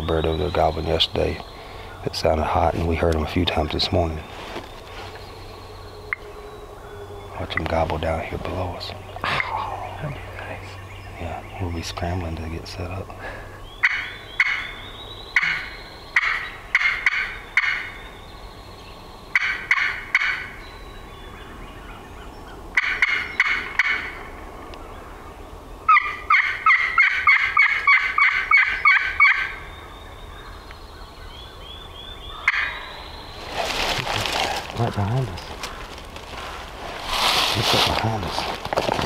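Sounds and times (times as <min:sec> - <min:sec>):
friction turkey call: 0:13.8 - 0:14.8, 0:15.4 - 0:18.0, 0:22.8 - 0:24.2, 0:25.9 - 0:29.6.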